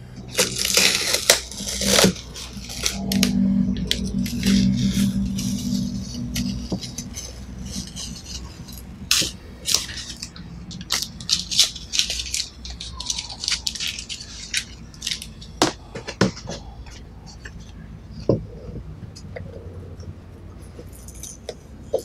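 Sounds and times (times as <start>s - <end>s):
tape crinkling: 0.3s - 16.6s.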